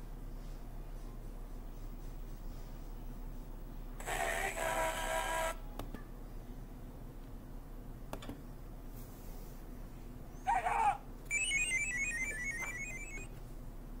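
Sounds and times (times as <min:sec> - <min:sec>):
electronic warbling trill: 0:11.3 - 0:13.3.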